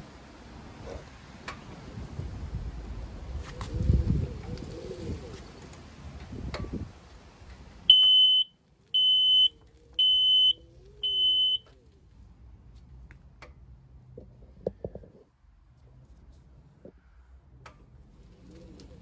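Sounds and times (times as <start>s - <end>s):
high-pitched electronic beeps: 7.9s - 11.6s.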